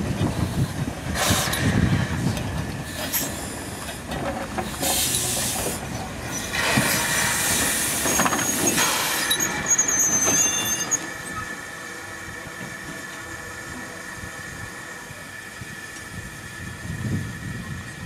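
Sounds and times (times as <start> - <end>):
steam locomotive exhaust beat: 0.0 - 18.0
high wheel squeal: 6.3 - 13.8.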